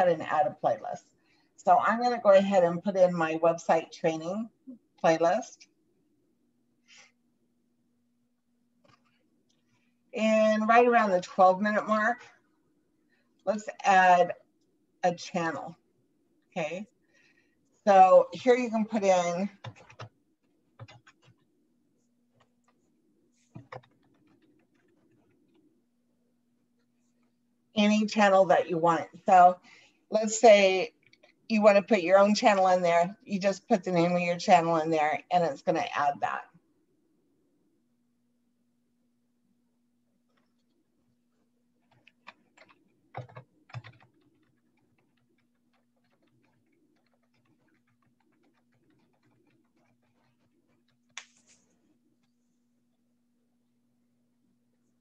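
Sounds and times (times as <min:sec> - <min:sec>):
keyboard typing: 0:18.8 - 0:21.6, 0:22.3 - 0:25.8, 0:41.8 - 0:52.3.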